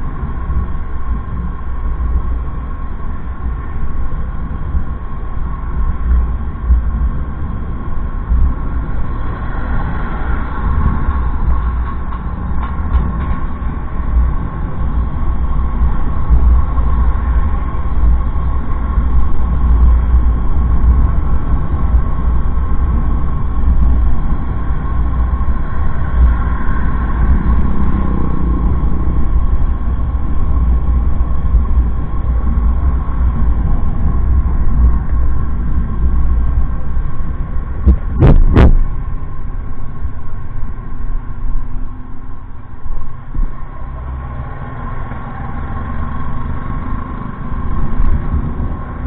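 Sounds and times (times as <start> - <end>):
wind buffeting microphone: 0.0 - 44.2
road noise: 0.0 - 49.0.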